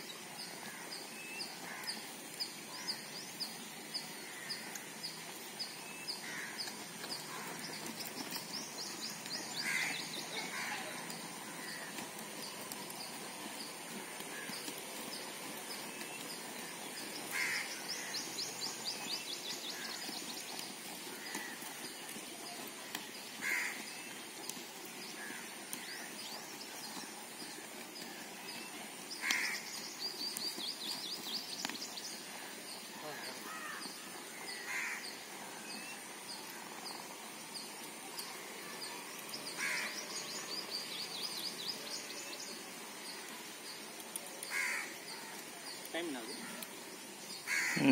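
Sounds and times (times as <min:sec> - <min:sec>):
outdoor background noise: 0:00.0 - 0:47.9
crow cawing: 0:06.2 - 0:06.6, 0:09.6 - 0:11.0, 0:17.3 - 0:18.2, 0:21.1 - 0:21.6, 0:23.4 - 0:23.8, 0:29.2 - 0:29.7, 0:33.4 - 0:35.0, 0:39.6 - 0:39.9, 0:44.5 - 0:45.3, 0:47.4 - 0:47.9.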